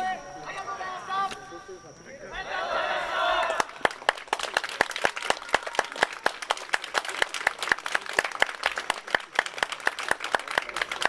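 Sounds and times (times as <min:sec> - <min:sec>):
crowd clapping: 0:03.4 - 0:11.0.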